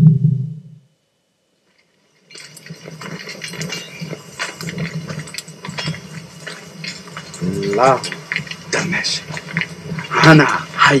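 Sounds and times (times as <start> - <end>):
low logo whoosh: 0.0 - 0.8
crackling rustling clicks: 1.7 - 11.0.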